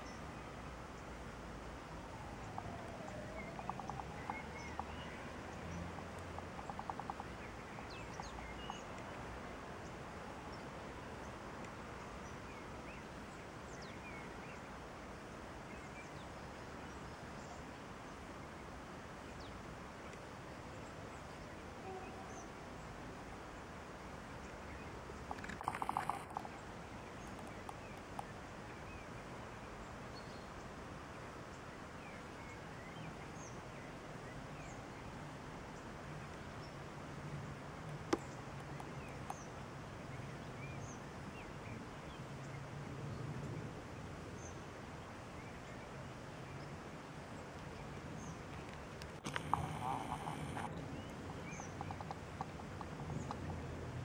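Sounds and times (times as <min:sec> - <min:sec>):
steady background hiss: 0:00.0 - 0:54.0
faint bird chirps: 0:02.0 - 0:09.2, 0:21.2 - 0:22.8, 0:24.4 - 0:29.6, 0:49.2 - 0:53.7.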